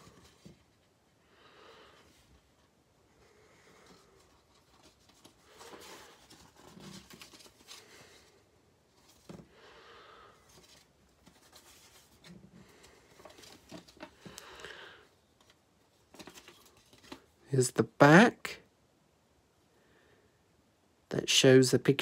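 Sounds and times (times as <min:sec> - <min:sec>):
paper pages rustling: 0:03.8 - 0:08.4, 0:10.5 - 0:14.6, 0:15.4 - 0:17.4.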